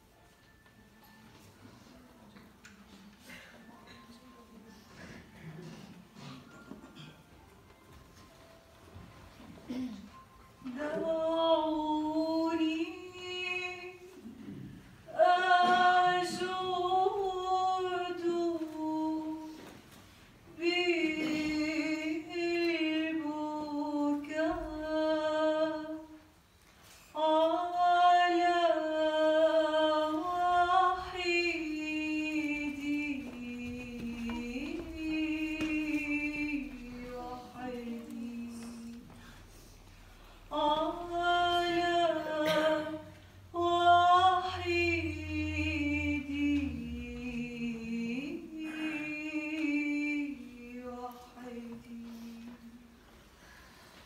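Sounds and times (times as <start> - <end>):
woman singing a hymn: 9.7 - 39.6, 40.2 - 53.2.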